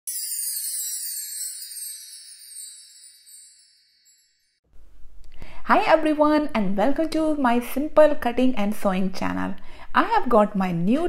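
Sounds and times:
high sparkling jingle: 0.0s - 4.6s.

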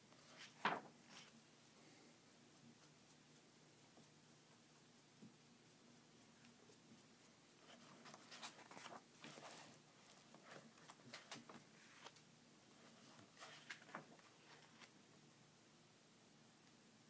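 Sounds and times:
paper pages turning: 0.1s - 1.4s, 7.7s - 12.2s, 12.8s - 15.0s.

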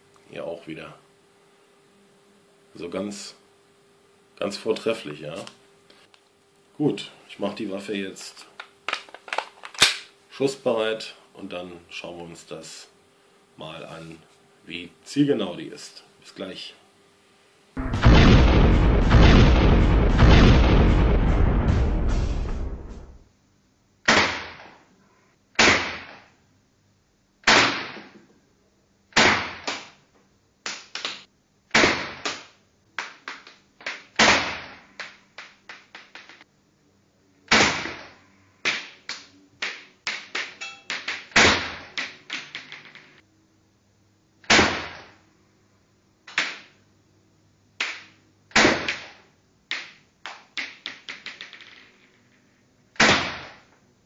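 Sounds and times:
airsoft pistol shots: 24.0s - 24.7s, 25.6s - 26.2s, 27.4s - 28.1s, 29.1s - 29.8s, 31.7s - 32.5s, 34.2s - 34.8s, 37.5s - 38.1s, 41.1s - 42.0s, 44.4s - 45.1s, 48.5s - 49.2s, 53.0s - 53.6s.

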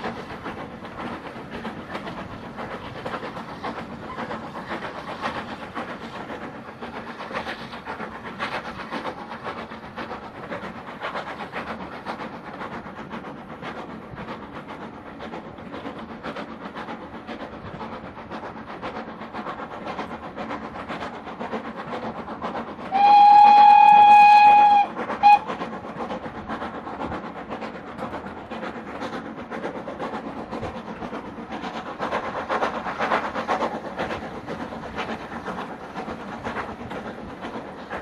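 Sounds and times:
train rumbling on rails: 0.0s - 38.0s
steam locomotive whistle: 22.9s - 25.5s.

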